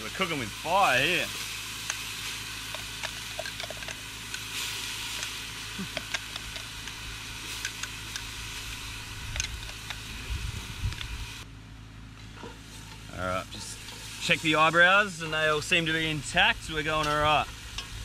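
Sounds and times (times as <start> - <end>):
paste sizzling in hot oil: 0.0 - 11.4, 12.6 - 18.0
low rumble: 8.3 - 11.5.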